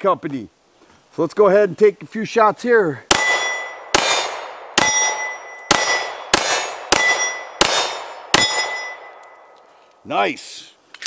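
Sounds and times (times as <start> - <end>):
pistol shots: 3.1 - 9.3
steel targets ringing: 3.1 - 9.6.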